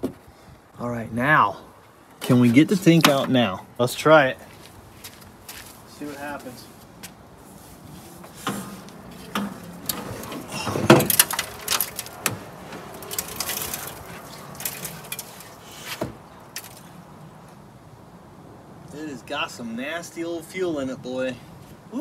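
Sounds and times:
metal scraping and clunking: 7.4s - 16.8s.

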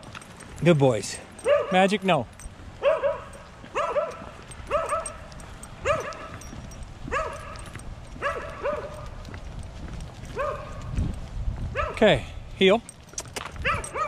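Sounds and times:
dog barking: 1.4s - 1.9s, 2.8s - 6.4s, 7.1s - 9.1s, 10.3s - 10.9s, 11.8s - 12.0s, 13.6s - 14.0s.

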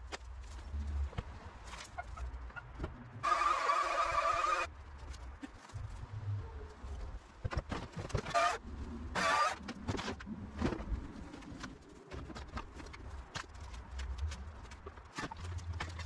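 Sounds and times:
timber boards creaking: 7.5s - 16.0s.

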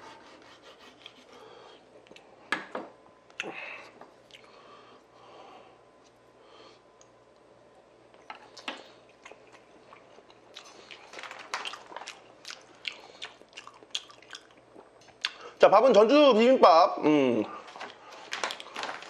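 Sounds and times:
close-miked wet chewing: 8.1s - 15.5s.

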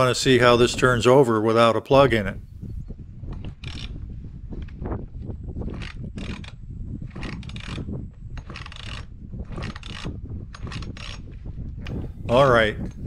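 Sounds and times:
chainsaw recoil starter pulled: 5.7s - 7.8s, 8.4s - 11.2s.

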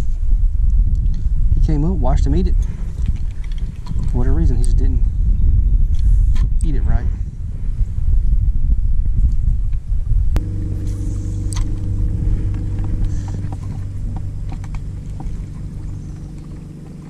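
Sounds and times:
low rumble: 0.0s - 17.0s
electric motor humming: 10.4s - 17.0s.

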